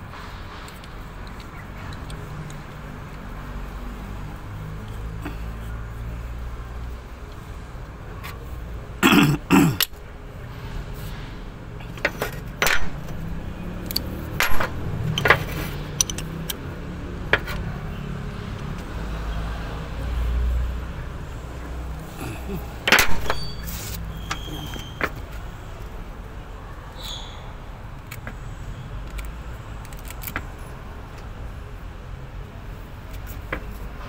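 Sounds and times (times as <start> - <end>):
hand tools clinking on metal: 13.8 - 16.6.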